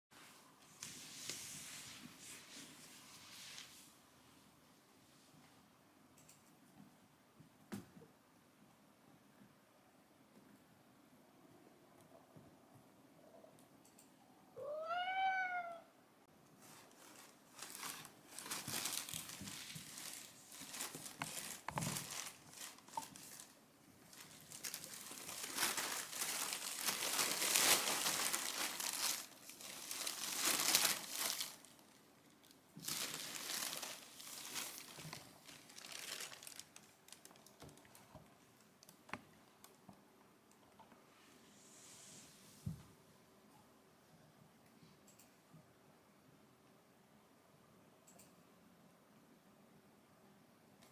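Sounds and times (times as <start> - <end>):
cat meowing: 14.6 - 16.0
plastic bag crinkling: 16.6 - 38.1.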